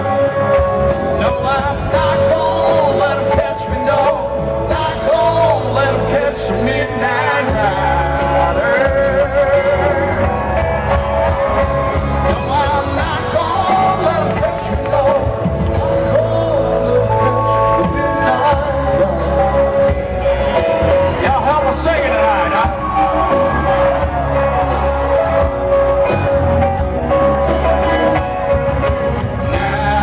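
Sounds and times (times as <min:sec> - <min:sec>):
person singing with vibrato: 0:00.0 - 0:11.2, 0:12.2 - 0:24.4, 0:29.4 - 0:30.0
live rock band playing: 0:00.0 - 0:30.0.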